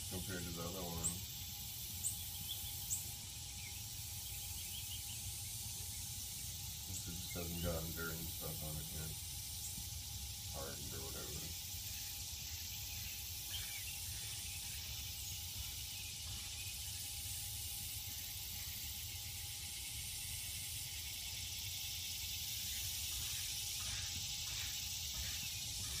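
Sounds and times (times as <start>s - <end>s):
background hiss: 0.0s - 26.0s
faint constant hum: 0.0s - 26.0s.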